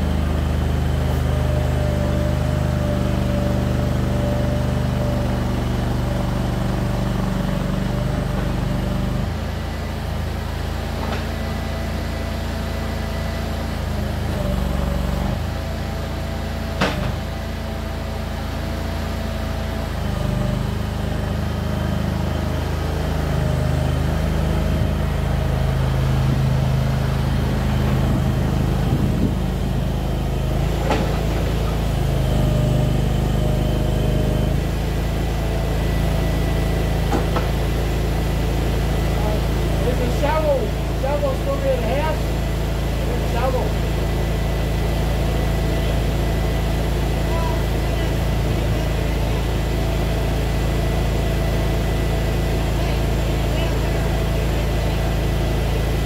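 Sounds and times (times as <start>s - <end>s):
loader engine running: 0.0s - 56.0s.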